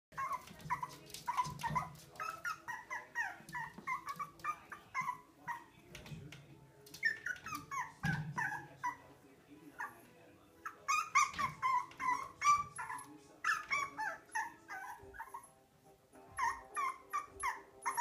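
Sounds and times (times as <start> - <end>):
puppy yipping and whining: 0.2 - 5.7, 7.0 - 9.0, 10.6 - 15.5, 16.3 - 18.0.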